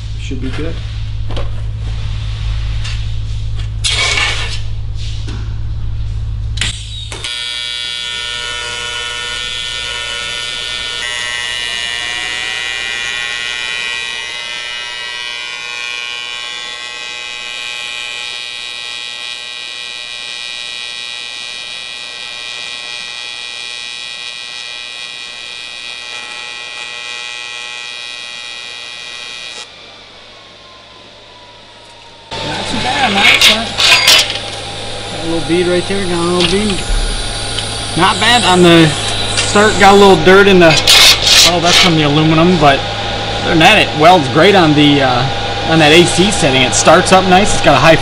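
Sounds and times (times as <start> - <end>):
welding arc buzzing: 1.0 - 29.7, 32.3 - 48.0.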